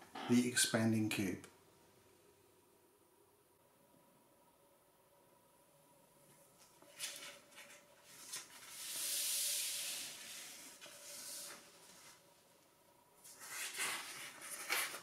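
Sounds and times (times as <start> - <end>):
paper sliding across table: 6.9 - 12.3
paper rustling and tapping: 13.3 - 15.0.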